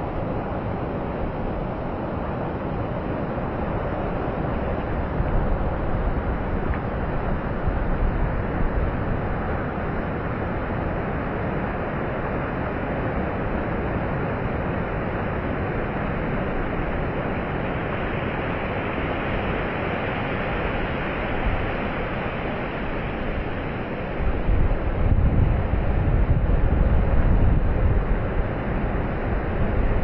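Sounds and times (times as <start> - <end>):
ocean surf breaking on sand: 13.8 - 30.0.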